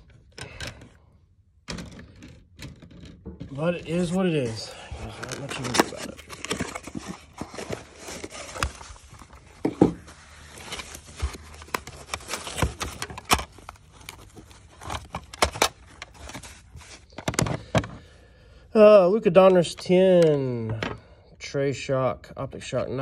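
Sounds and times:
cardboard box rustling and scraping: 3.5s - 17.1s.

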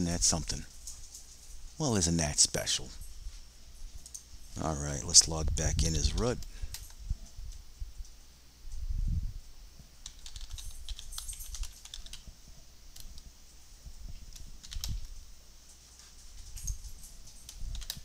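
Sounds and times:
typing on a computer keyboard: 10.0s - 12.3s, 14.4s - 15.1s, 17.4s - 18.0s.

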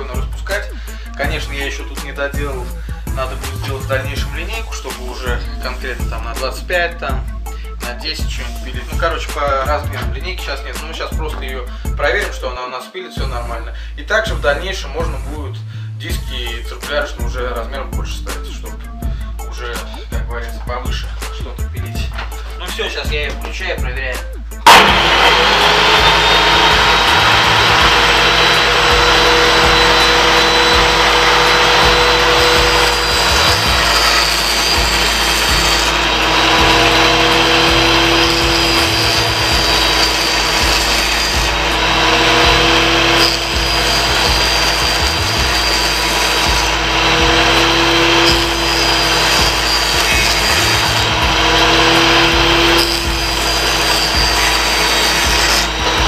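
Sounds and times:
table saw cutting board: 3.2s - 6.5s, 24.6s - 56.0s.

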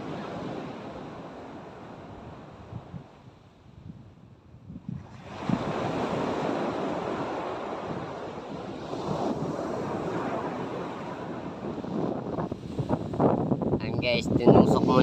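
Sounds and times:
waves breaking on a beach: 0.0s - 3.8s, 4.8s - 15.0s
wind gusting on microphone: 0.0s - 15.0s.

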